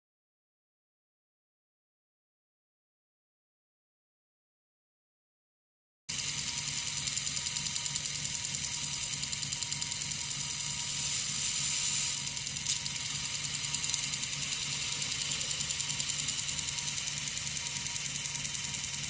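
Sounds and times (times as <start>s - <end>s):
disc sander grinding metal: 6.1s - 19.0s.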